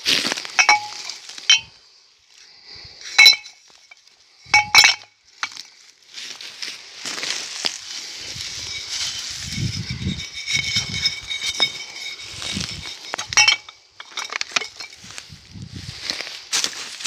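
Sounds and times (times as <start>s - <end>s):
rustling handling noise: 0.0s - 1.8s, 3.0s - 17.0s
glass bottles clinking: 0.5s - 1.8s, 3.0s - 5.7s, 8.3s - 15.2s.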